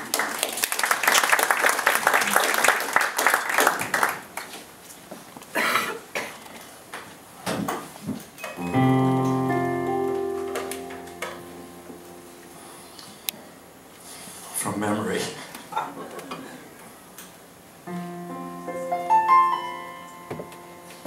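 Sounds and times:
audience applause: 0.0s - 4.5s
electronic keyboard chord: 8.6s - 13.3s, 17.9s - 21.0s.

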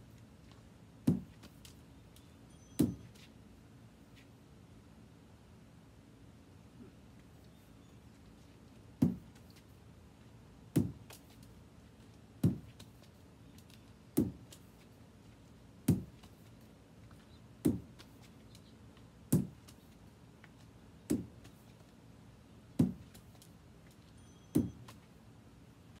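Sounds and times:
lacrosse ball smacking stick: 1.1s - 1.8s, 2.8s - 3.2s, 9.0s - 9.6s, 10.8s - 11.4s, 12.4s - 13.1s, 14.2s - 14.8s, 15.9s - 16.5s, 17.6s - 18.3s, 19.3s - 19.8s, 21.1s - 21.6s, 22.8s - 23.5s.

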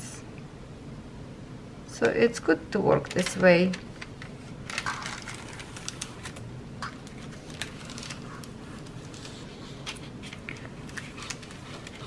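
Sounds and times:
plastic sheet rustling and crackling: 3.1s - 12.0s.

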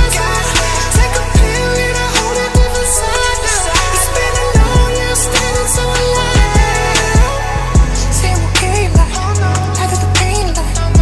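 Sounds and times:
crisp high percussion: 0.0s - 10.0s
deep sliding bass hits: 0.0s - 11.0s.

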